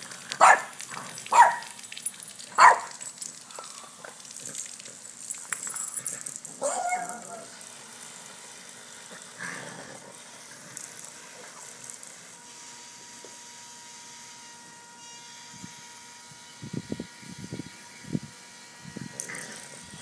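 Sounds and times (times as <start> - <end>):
sprinkler spray hissing: 0.0 - 13.2.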